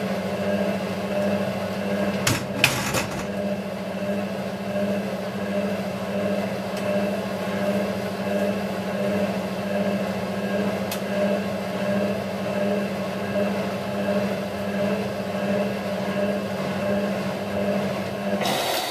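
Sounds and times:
drain pump humming: 0.0 - 18.9
washing machine drum turning: 2.0 - 3.6.

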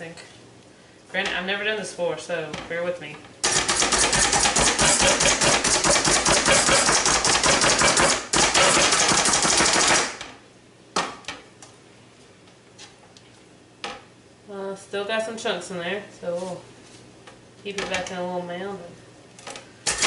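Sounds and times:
food chopper blades clacking: 3.4 - 10.2.

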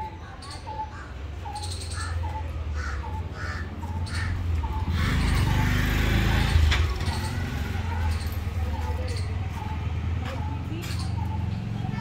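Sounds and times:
crows cawing: 2.0 - 4.4.

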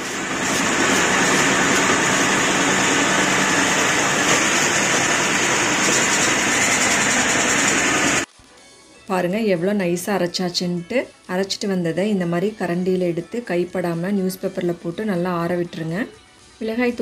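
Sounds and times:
spice grinding mill running: 0.0 - 8.3.

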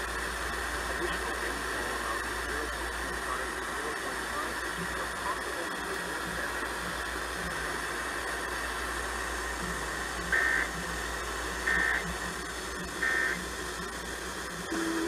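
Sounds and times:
radio static hiss: 0.0 - 15.0
warbling digital data tones: 10.3 - 10.7, 11.6 - 14.0, 14.7 - 15.0.

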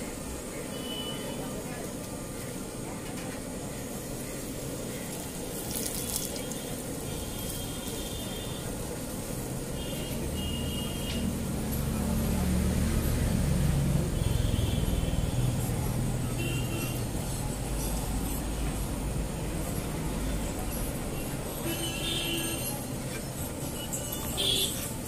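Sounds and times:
passing traffic rumble: 0.0 - 25.0
flatbread hissing on hot griddle: 4.0 - 11.2.

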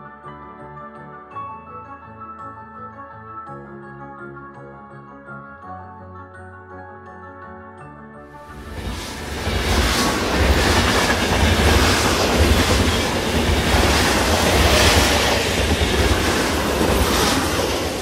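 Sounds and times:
train clattering on rails: 8.5 - 18.0.

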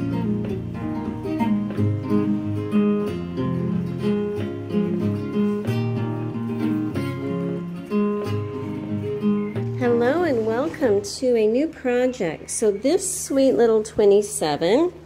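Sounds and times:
acoustic guitar plucked and strummed: 0.0 - 11.3.

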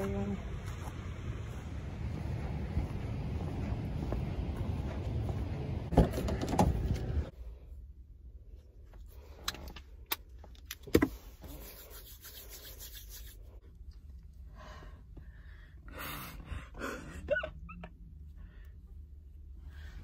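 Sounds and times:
hands rubbing together: 11.4 - 13.6.

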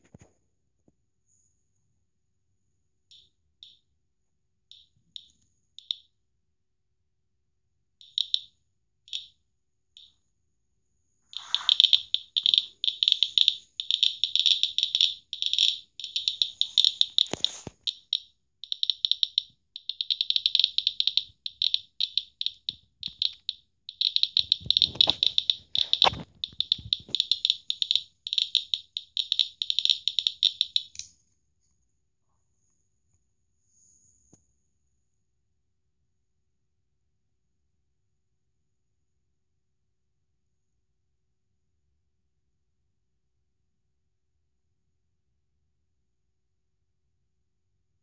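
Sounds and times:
survey meter buzzer chirping: 4.7 - 6.1, 8.0 - 8.5, 9.1 - 9.3, 11.3 - 31.0.

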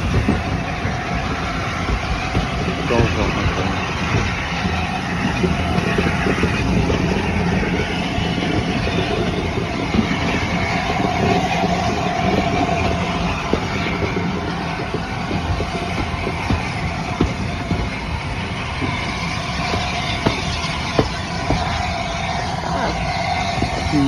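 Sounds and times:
faint whine: 0.0 - 24.0
train wheels rumbling on rails: 0.0 - 24.0.

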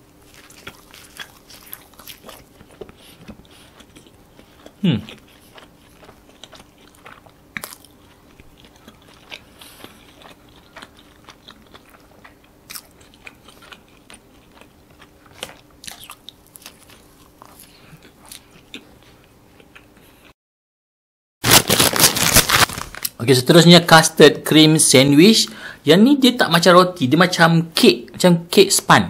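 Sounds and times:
faint steady hum: 0.0 - 20.3, 22.1 - 29.0
close-miked chewing: 0.1 - 20.3.

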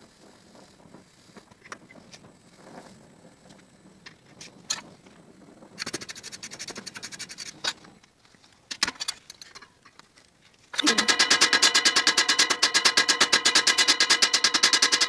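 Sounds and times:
rapid metallic rattling: 10.8 - 15.0.

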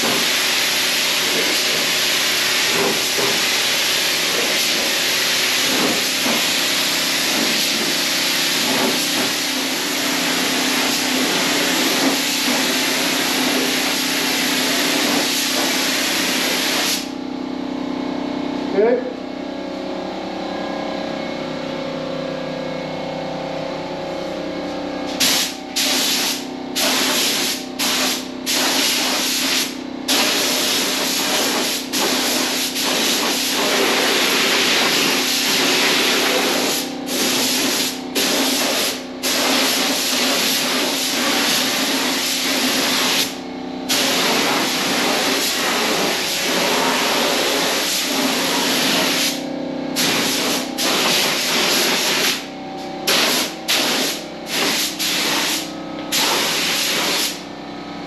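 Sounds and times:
paint spray gun hissing: 2.5 - 17.2, 25.1 - 49.4, 50.0 - 52.5, 53.1 - 57.4.

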